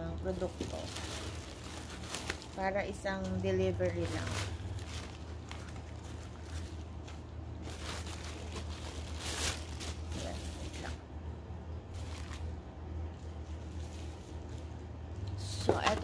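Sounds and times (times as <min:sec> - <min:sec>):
packaging rustling and crinkling: 0:00.2 - 0:11.0, 0:11.9 - 0:14.8
packaging ripping: 0:00.6 - 0:02.7, 0:04.0 - 0:10.9.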